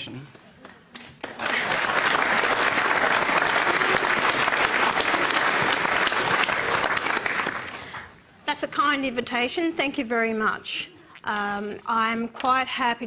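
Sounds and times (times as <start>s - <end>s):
studio audience applauding: 1.0s - 8.2s.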